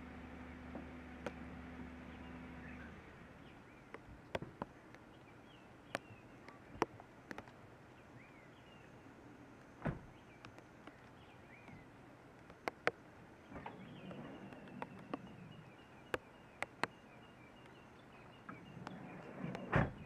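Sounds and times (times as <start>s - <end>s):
rain drops tapping: 3.8s - 5.2s, 5.9s - 7.8s, 10.4s - 17.0s
bird chirps: 12.8s - 20.0s.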